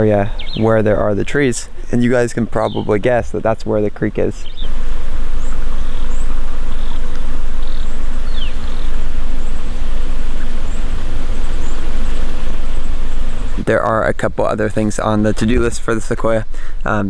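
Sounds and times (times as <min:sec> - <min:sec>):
high bird chirps: 0:00.0 - 0:03.4, 0:04.2 - 0:13.7
loud buzzing hum: 0:00.0 - 0:17.0.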